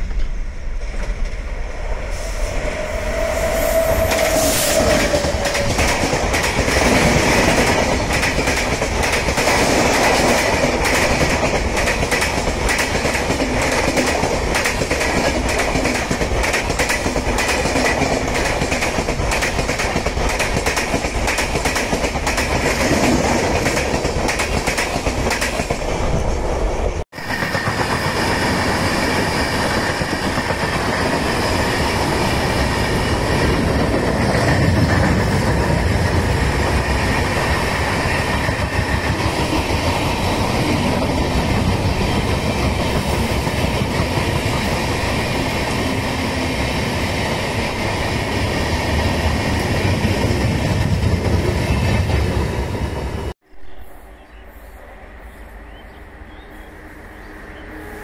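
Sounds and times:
locomotive passing falling tone: 0:00.0 - 0:20.1
train wheels roaring on rails: 0:00.0 - 0:58.0.

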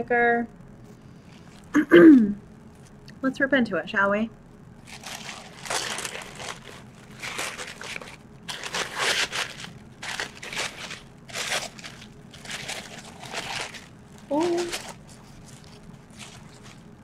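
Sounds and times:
wrapping paper crinkling: 0:04.8 - 0:17.0.

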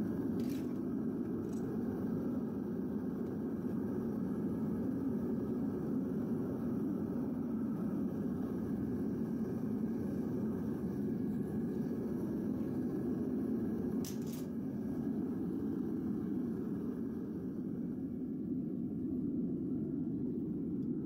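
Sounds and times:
furnace burner rumbling: 0:00.0 - 0:21.0.

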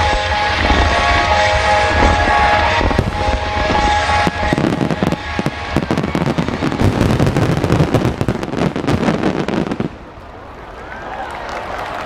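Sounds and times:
music: 0:00.0 - 0:08.9
fireworks bangs and crackles: 0:00.0 - 0:10.4.

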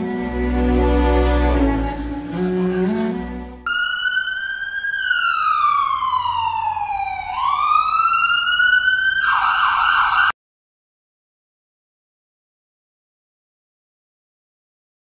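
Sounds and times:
emergency siren wailing: 0:01.6 - 0:10.4.

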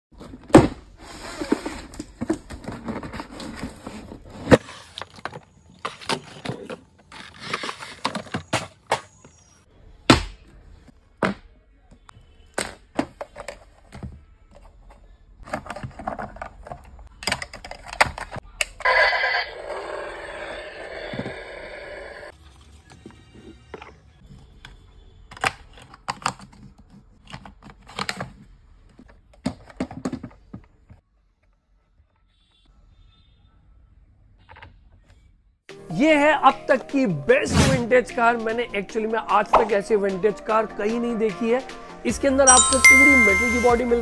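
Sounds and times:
rustling and scraping: 0:00.2 - 0:08.9.

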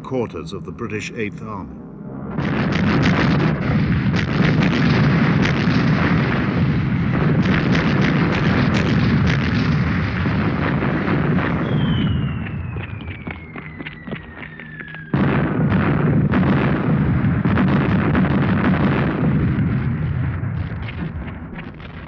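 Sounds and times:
bomb explosions: 0:00.0 - 0:22.0
falling whistle: 0:11.6 - 0:15.2.

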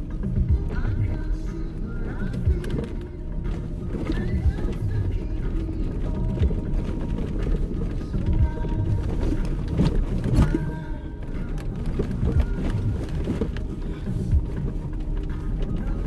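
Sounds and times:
background music: 0:00.0 - 0:16.0
vehicle rumbling on dirt trail: 0:00.0 - 0:16.0.

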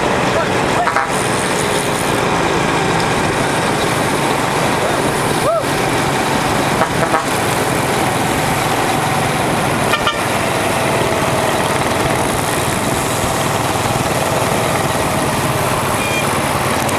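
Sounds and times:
bicycle road noise: 0:00.0 - 0:16.9
wind on microphone: 0:03.1 - 0:16.9
sharp toot: 0:16.0 - 0:16.3.

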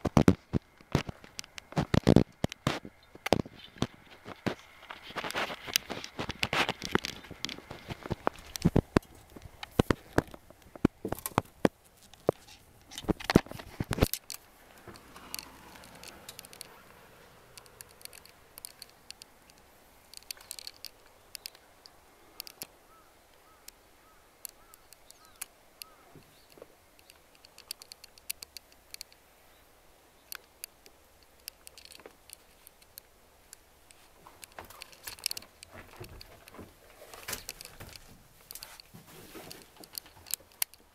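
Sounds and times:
camera handling clicks and knocks: 0:00.1 - 0:16.7.

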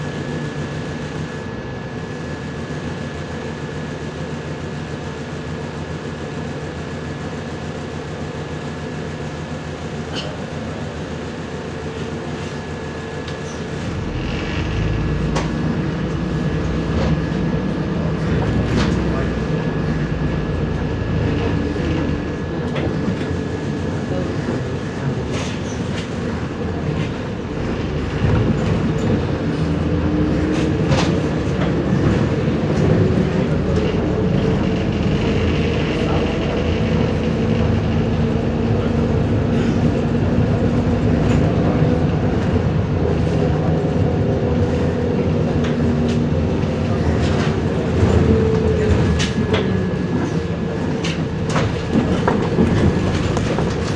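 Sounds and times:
bus engine and road drone: 0:00.0 - 0:53.9
clicks and rattles from bus body: 0:18.2 - 0:19.5, 0:24.9 - 0:53.9.

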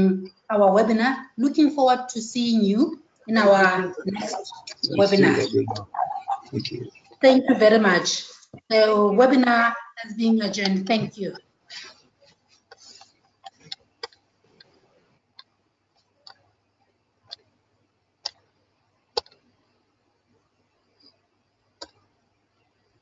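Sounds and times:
sharp clicks and taps: 0:19.2 - 0:19.4.

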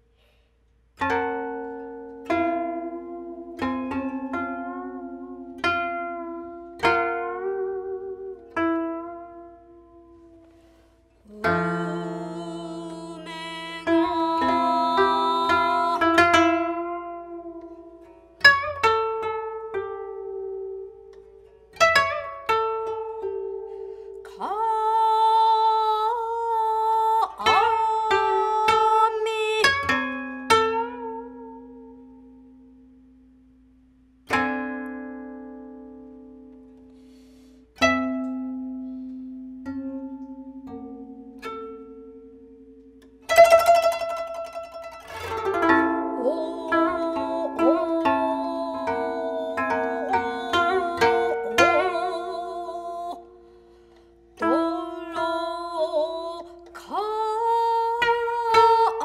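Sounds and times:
koto plucked notes: 0:01.0 - 0:59.0
person singing sustained tones: 0:11.2 - 0:16.2, 0:46.0 - 0:53.4.

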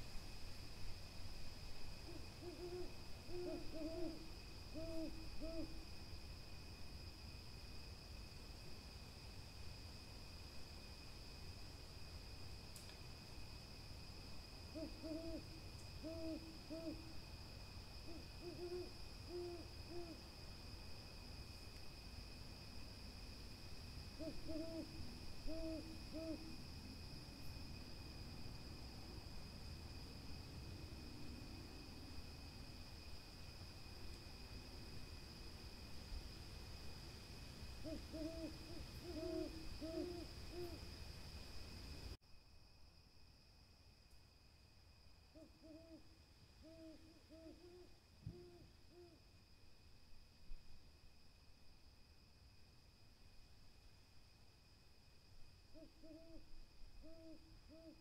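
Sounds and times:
high insect trill: 0:00.0 - 0:58.0
owls hooting: 0:02.1 - 0:05.8, 0:14.7 - 0:17.1, 0:18.1 - 0:20.2, 0:24.2 - 0:26.5, 0:37.8 - 0:40.8, 0:45.4 - 0:46.0, 0:46.6 - 0:49.2, 0:55.8 - 0:56.4, 0:57.0 - 0:58.0.

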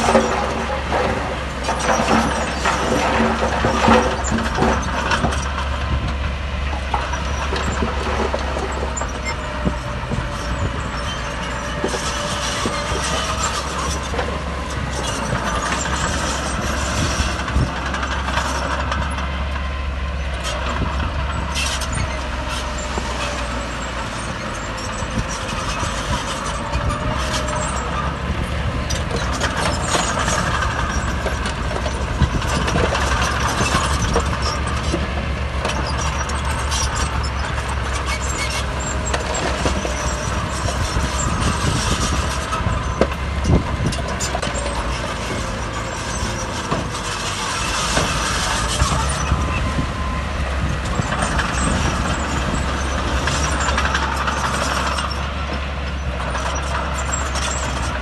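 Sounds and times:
heavy diesel machinery running: 0:00.0 - 0:58.0.

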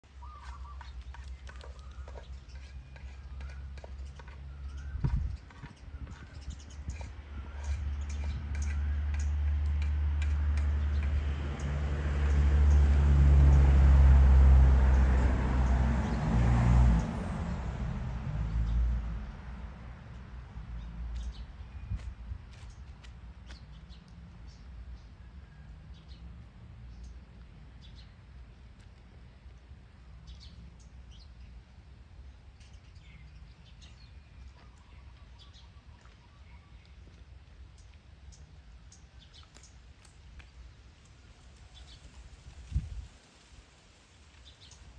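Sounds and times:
vehicle engine humming: 0:00.0 - 0:23.6
faint bird chirps: 0:00.1 - 0:07.0.

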